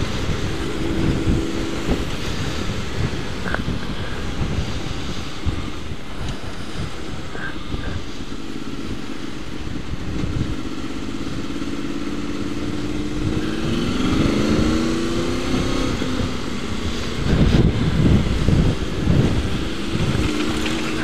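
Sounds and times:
motorcycle engine accelerating: 0.0 - 21.0
wind rumbling on microphone: 0.0 - 21.0.

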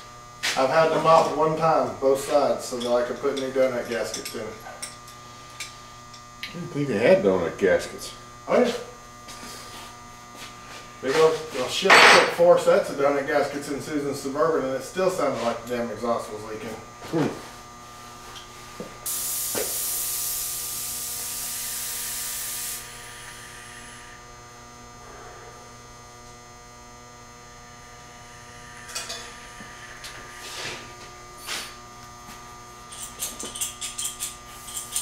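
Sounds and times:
electrical hum: 0.0 - 35.0
hissing spray: 19.1 - 23.2.

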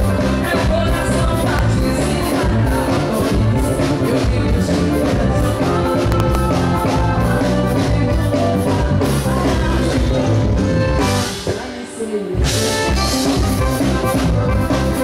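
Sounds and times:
drum kit beat: 0.0 - 11.8, 12.4 - 15.0
accordion: 0.0 - 15.0
woman singing into microphone: 0.4 - 10.3, 11.4 - 13.0.

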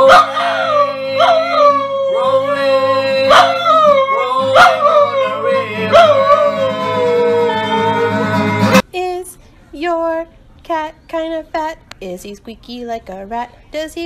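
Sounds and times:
dog howling: 0.0 - 8.8
man singing: 0.0 - 8.8
acoustic guitar strumming: 2.8 - 8.8.

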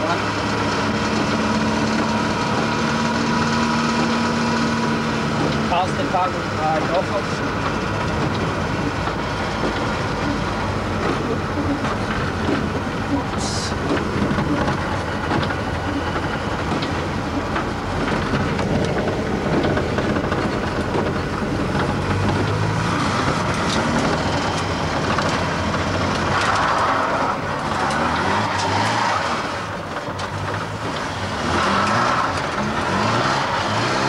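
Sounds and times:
car engine revving: 0.0 - 34.0
road noise: 0.0 - 34.0.

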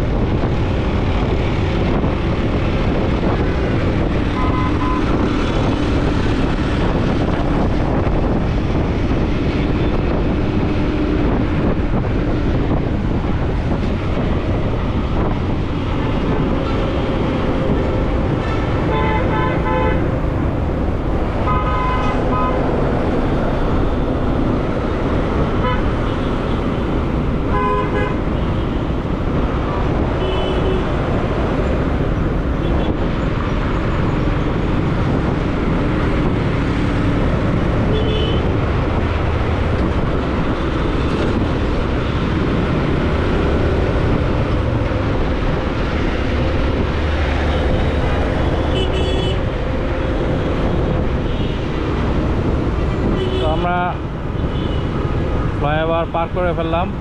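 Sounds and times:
motorcycle road noise: 0.0 - 57.0
wind rushing over microphone: 0.0 - 57.0
vehicle horns honking: 4.4 - 5.2, 18.4 - 20.0, 21.4 - 22.6, 25.6 - 26.3, 27.5 - 28.8, 37.9 - 38.5, 48.7 - 49.5, 53.1 - 53.7.

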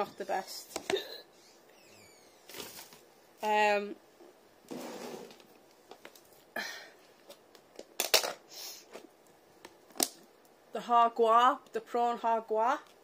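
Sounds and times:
plastic containers rustling: 2.5 - 3.1, 4.7 - 6.4.

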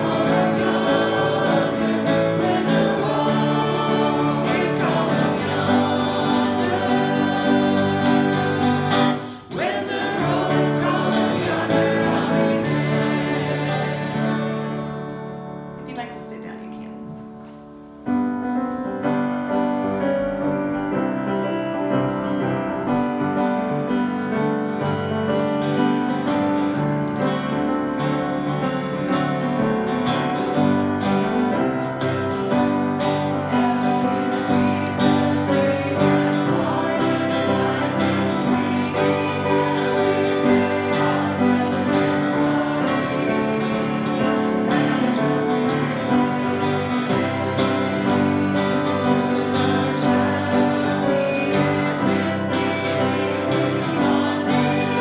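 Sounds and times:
woman and man singing: 0.0 - 15.0, 33.1 - 55.0
strummed acoustic guitar: 0.0 - 18.3, 19.0 - 55.0.

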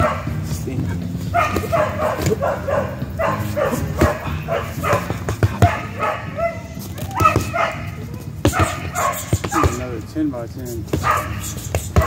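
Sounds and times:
dog barking: 0.0 - 0.4, 1.3 - 10.0, 10.9 - 12.0
thuds on punching bag: 8.4 - 9.9.

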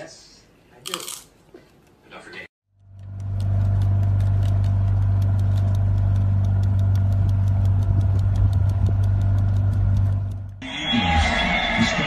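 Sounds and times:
motorboat engine humming: 2.7 - 10.6.

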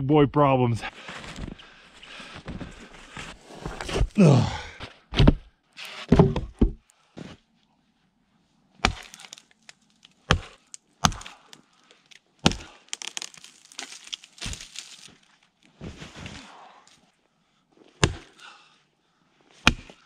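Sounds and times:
axe chopping tree trunk: 8.8 - 9.5, 10.2 - 11.6, 12.4 - 14.8, 18.0 - 18.3, 19.6 - 20.0
wood cracking and splintering: 8.8 - 15.3.

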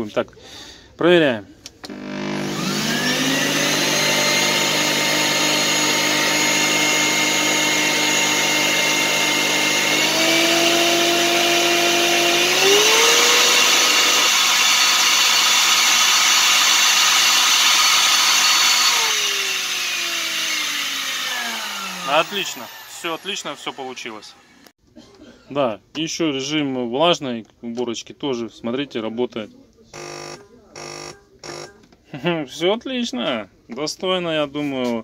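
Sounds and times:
vacuum cleaner motor running: 1.8 - 24.7.

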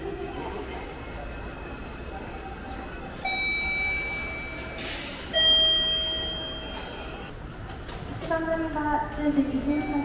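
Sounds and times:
electronic station chime: 1.1 - 7.3.

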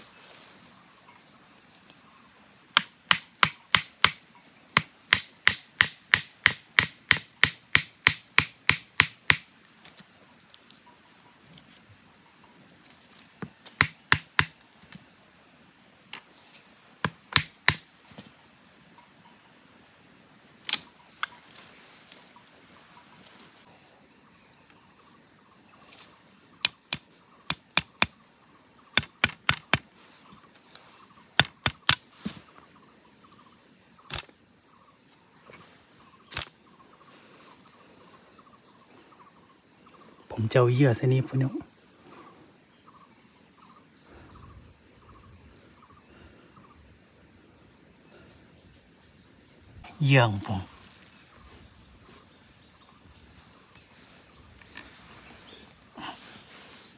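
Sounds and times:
insect chorus: 0.0 - 56.9
machete knocking on stake: 2.8 - 4.2, 4.8 - 9.5, 13.4 - 14.6, 17.0 - 17.9, 26.6 - 28.2, 29.0 - 29.9, 31.4 - 32.0, 34.1 - 34.4.

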